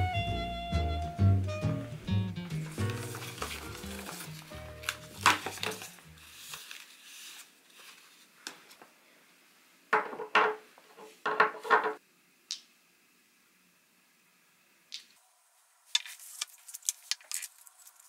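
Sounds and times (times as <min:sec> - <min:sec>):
background music: 0:00.0 - 0:06.3
paper bag rustling: 0:02.5 - 0:08.8, 0:16.0 - 0:18.0
glass bottles clattering on wood: 0:11.3 - 0:12.0.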